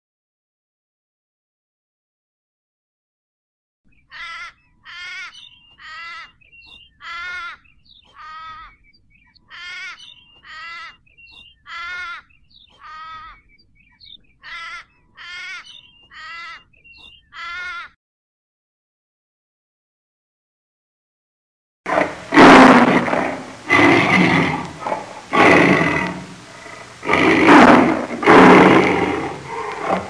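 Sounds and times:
crow cawing: 4.1s - 6.3s, 7.0s - 8.8s, 9.5s - 11.0s, 11.7s - 13.4s, 14.4s - 16.6s, 17.3s - 18.0s.

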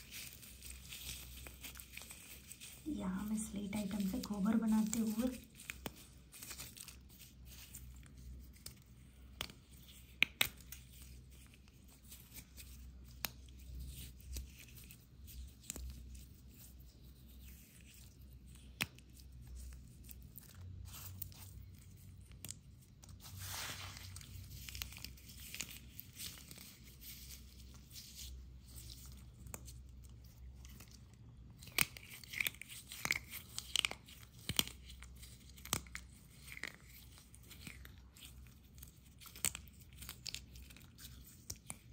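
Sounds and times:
slate pieces crunching and crackling: 17.4s - 41.9s.

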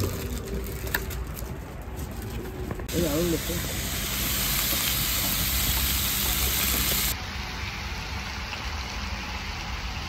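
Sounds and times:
meat sizzling on a grill: 2.9s - 10.0s.

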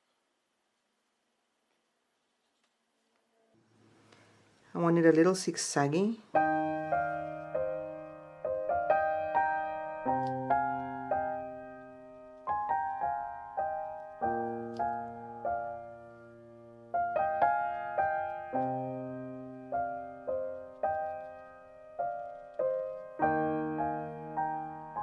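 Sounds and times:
slow gentle piano music: 6.2s - 25.0s.

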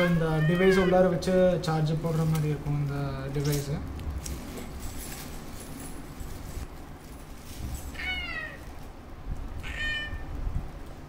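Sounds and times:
high meow-like call: 0.0s - 1.1s, 9.6s - 10.3s.

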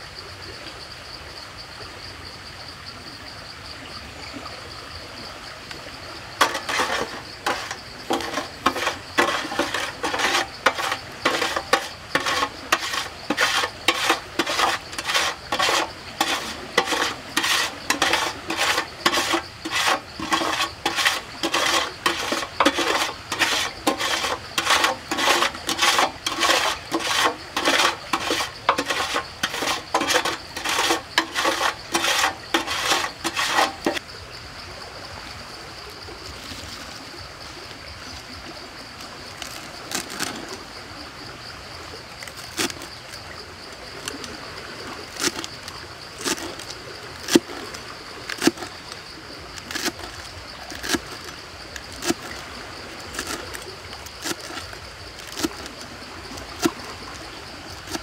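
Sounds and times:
utensil scraping a metal pan: 6.4s - 34.0s, 49.6s - 52.3s, 54.2s - 55.7s, 57.8s - 58.0s.

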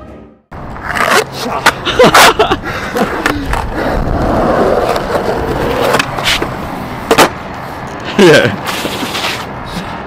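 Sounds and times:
skateboard wheels rolling: 0.5s - 10.0s
skateboard clacking on concrete: 3.0s - 3.7s, 4.8s - 7.4s.

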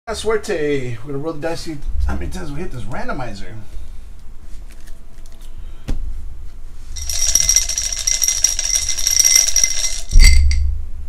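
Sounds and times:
dice rattling in a glass: 7.0s - 10.6s.

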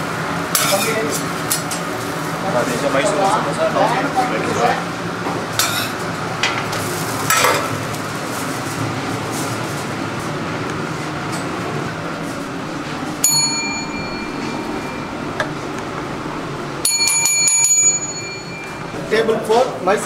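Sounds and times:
steady kitchen hiss: 0.0s - 16.9s
service bell ringing: 12.0s - 19.4s.

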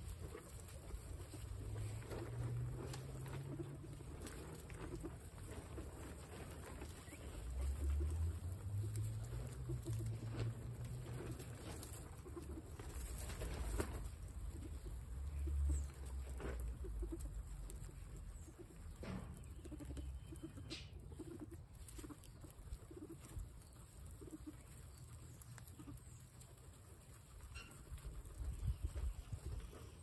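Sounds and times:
guinea pigs cooing: 0.0s - 30.0s
rustling straw: 0.0s - 30.0s
wind rumbling on microphone: 28.1s - 30.0s.

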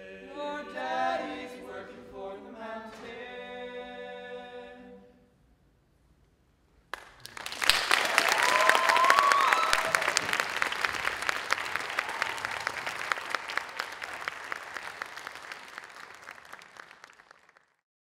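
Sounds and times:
audience applauding: 6.9s - 17.8s
audience cheering: 7.3s - 17.5s.

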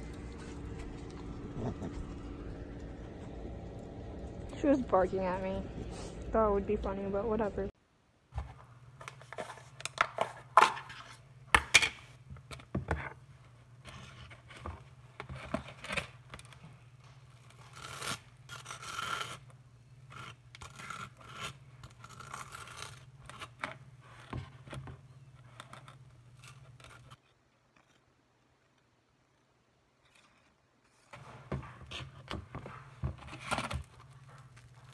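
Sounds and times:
steady low hum: 0.0s - 7.8s
knife scraping cream cheese on bread: 17.5s - 23.6s.

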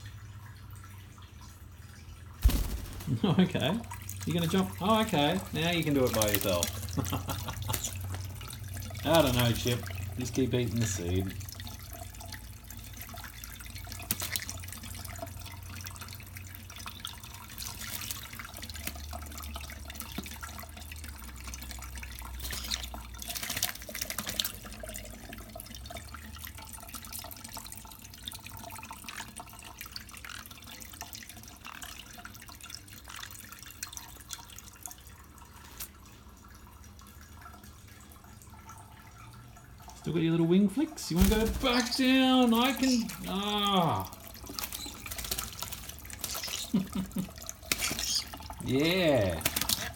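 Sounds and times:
tap water running into sink: 0.0s - 49.9s
bird splashing in water: 2.4s - 20.6s, 21.4s - 24.7s, 41.0s - 49.9s.

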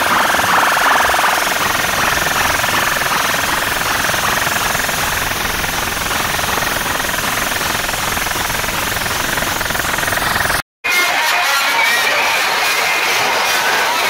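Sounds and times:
distorted loud sound system buzz: 0.0s - 14.0s.

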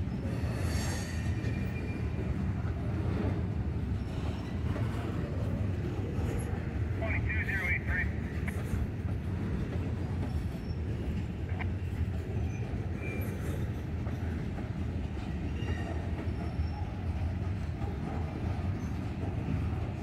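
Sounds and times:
train wheels rumbling on rail: 0.0s - 20.0s
faint high wheel squeals: 0.1s - 2.6s, 9.9s - 14.3s, 15.2s - 17.8s.

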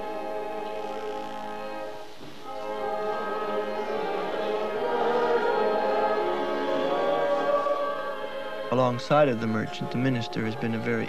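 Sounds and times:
choir singing a slow hymn: 0.0s - 11.0s.

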